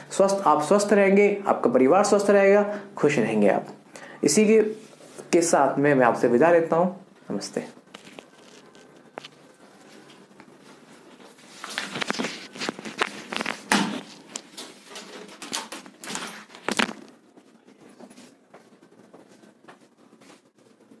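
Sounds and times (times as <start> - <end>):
footsteps: 7.8 - 20.7.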